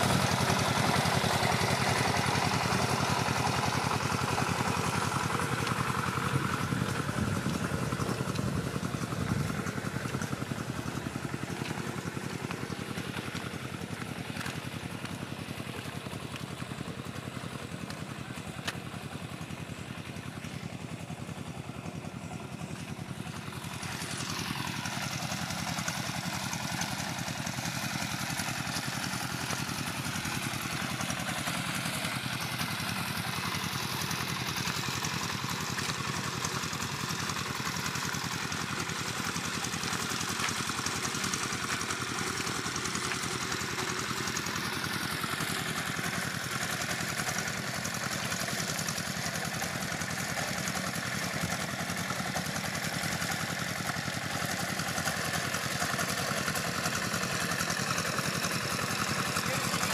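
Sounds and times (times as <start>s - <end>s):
road roller engine chugging: 0.0s - 59.9s.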